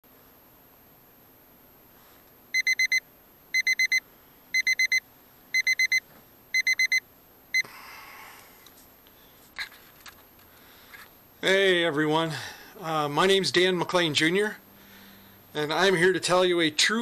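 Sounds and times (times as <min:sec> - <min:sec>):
alarm clock beeping: 0:02.6 - 0:03.0, 0:03.6 - 0:04.0, 0:04.6 - 0:05.0, 0:05.6 - 0:06.0, 0:06.6 - 0:07.0.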